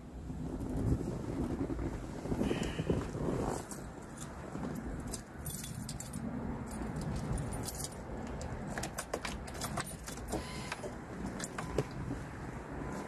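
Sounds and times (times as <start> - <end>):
small metallic clicks and jingles: 3.7 - 12.0.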